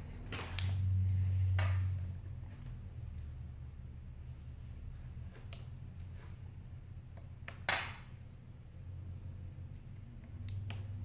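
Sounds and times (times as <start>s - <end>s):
low steady hum: 0.0s - 11.0s
fingers clicking phone connectors: 5.2s - 6.0s, 7.0s - 8.1s, 9.7s - 11.0s.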